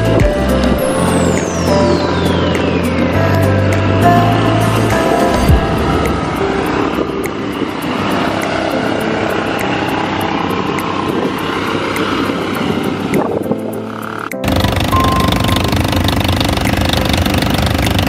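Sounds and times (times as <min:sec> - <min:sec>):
quad bike engines passing: 0:05.8 - 0:18.0.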